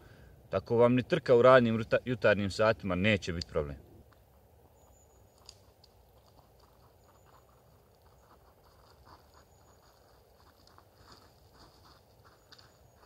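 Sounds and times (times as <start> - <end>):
soft ticks: 5.3 - 8.1.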